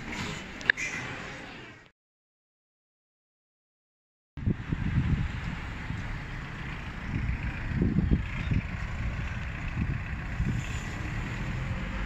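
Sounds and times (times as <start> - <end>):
wind buffeting microphone: 4.4 - 12.0.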